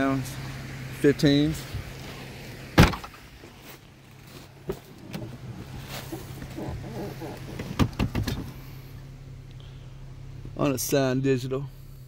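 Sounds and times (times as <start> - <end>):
steady low hum: 0.0 - 12.0
heavy thump: 2.8 - 3.2.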